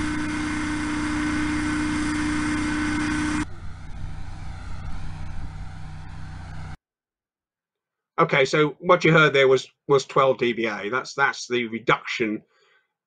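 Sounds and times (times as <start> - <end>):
hovercraft engine drone: 0.0 - 6.8
quiet hovercraft drone: 0.0 - 6.8.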